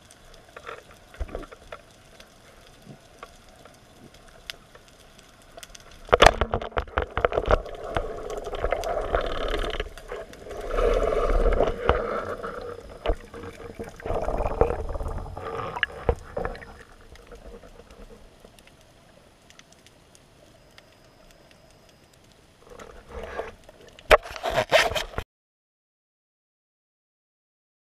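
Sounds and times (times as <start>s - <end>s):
knocking and scraping underwater: 0.4s - 4.9s, 5.6s - 18.7s, 22.6s - 25.2s.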